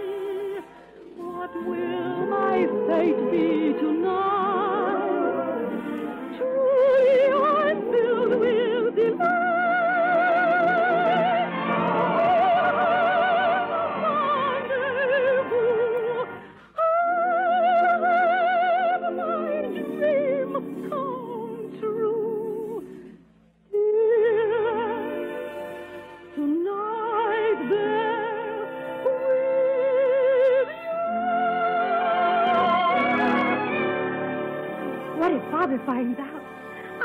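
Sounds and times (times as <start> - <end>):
soprano singing with vibrato: 0.0 - 23.0, 23.8 - 37.0
orchestra playing: 31.1 - 37.0.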